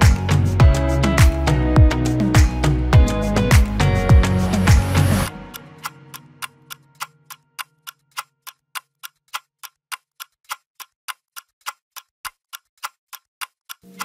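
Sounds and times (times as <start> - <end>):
clock-like ticks: 5.5 - 14.0.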